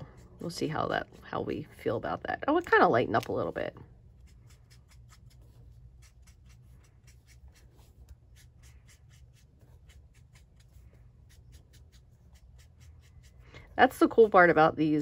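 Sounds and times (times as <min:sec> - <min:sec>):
low steady hum: 0:00.0 - 0:15.0
marker stroking on paper: 0:04.1 - 0:14.7.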